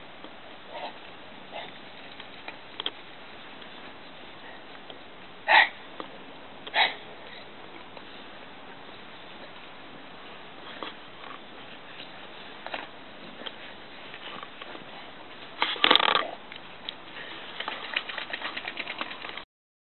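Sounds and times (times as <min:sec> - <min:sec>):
quick ticks: 0:17.6 - 0:19.4.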